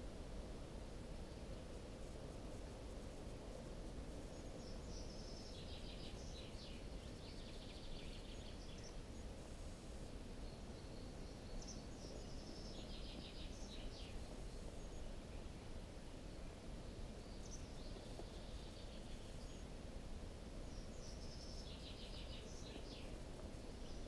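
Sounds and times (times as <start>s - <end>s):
low background noise: 0.0s - 24.0s
small bird chirping: 4.3s - 9.2s, 10.4s - 15.1s, 17.2s - 19.7s, 20.7s - 24.0s.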